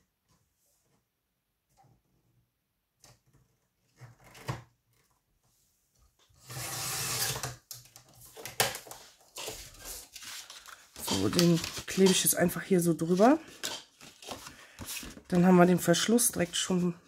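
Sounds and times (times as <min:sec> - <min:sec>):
paper scraping rustle: 0:08.9 - 0:15.4.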